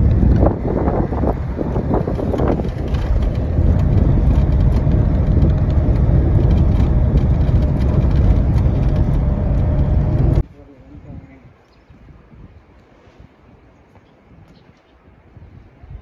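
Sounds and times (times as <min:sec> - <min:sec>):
vehicle rumble on rough road: 0:00.0 - 0:10.5
wind noise on microphone: 0:00.0 - 0:16.0.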